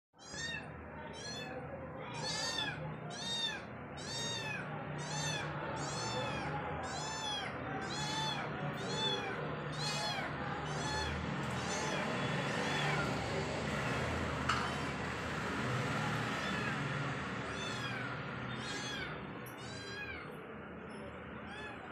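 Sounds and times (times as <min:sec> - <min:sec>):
kitten meowing: 0:00.2 - 0:13.2, 0:16.4 - 0:16.8, 0:17.5 - 0:20.4, 0:21.4 - 0:21.9.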